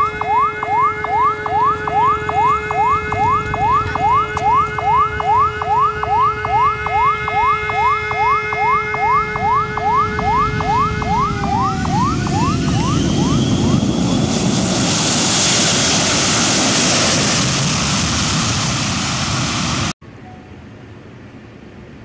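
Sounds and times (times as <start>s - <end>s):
steady held tones: 0.0s - 14.2s
electronic siren whooping: 0.0s - 18.3s
low rumble: 1.8s - 14.9s.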